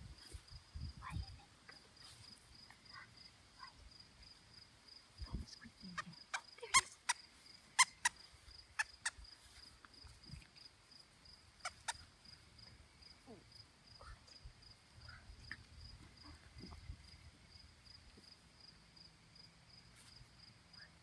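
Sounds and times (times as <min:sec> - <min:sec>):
pulsing insect chirp: 0:00.0 - 0:21.0
squeaky toy squeaking: 0:06.3 - 0:07.2, 0:07.8 - 0:08.2, 0:11.6 - 0:12.0.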